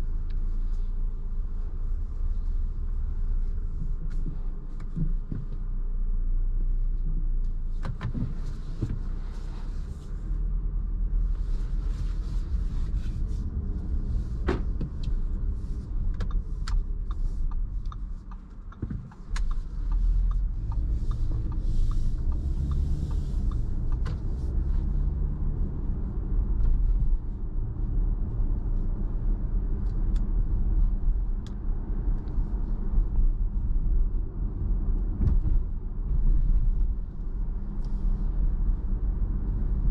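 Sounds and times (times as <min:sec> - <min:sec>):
engine and road rumble: 0:00.0 - 0:39.9
ticks: 0:16.2 - 0:22.8.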